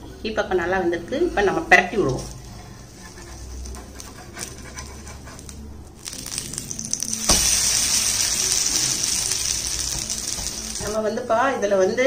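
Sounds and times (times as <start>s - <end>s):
spatula scraping pan: 2.2s - 6.4s
batter sizzling: 2.2s - 11.7s.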